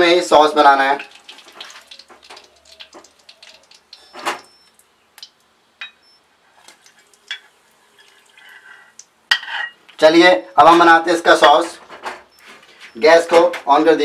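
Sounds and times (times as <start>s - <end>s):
spatula scraping metal pan: 7.3s - 9.8s.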